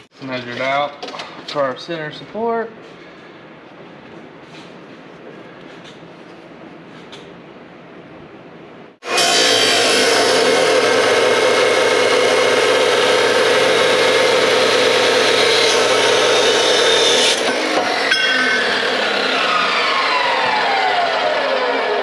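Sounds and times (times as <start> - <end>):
chop saw grinding steel: 9.0 - 22.0
saw blade spinning down: 9.0 - 22.0.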